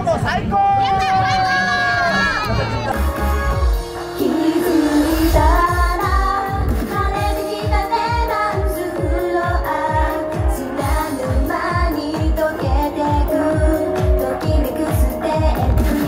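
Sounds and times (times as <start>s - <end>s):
amplified backing music: 2.5s - 16.0s
women singing into microphones: 4.0s - 16.0s.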